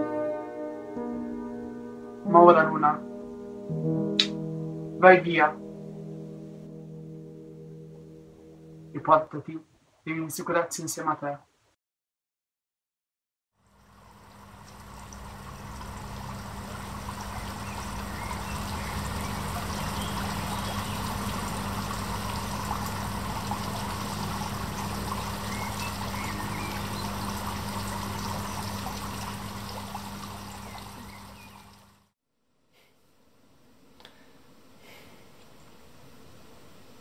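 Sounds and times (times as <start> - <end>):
stream flowing: 13.6 - 32.1.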